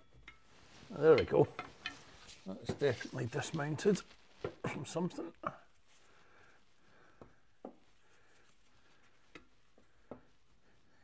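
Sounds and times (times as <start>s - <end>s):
faint metal clicks and knocks: 0.0s - 2.9s, 9.1s - 10.4s.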